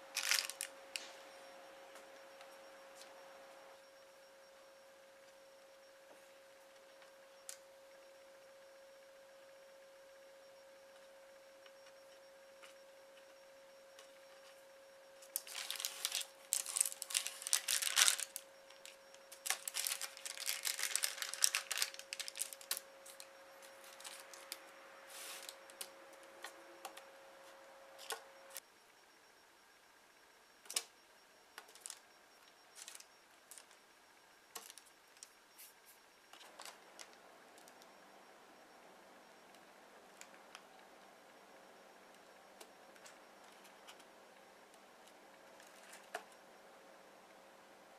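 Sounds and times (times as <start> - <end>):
faint steady hum: 0.0 - 47.9
baking paper crinkling: 0.1 - 0.7, 15.3 - 25.8, 32.8 - 33.6.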